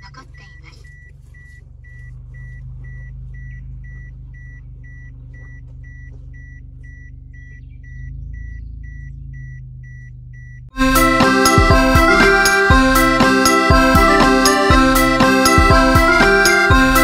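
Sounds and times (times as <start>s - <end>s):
car engine running: 0.0s - 17.0s
vehicle warning beeper: 0.0s - 17.0s
music: 10.8s - 17.0s.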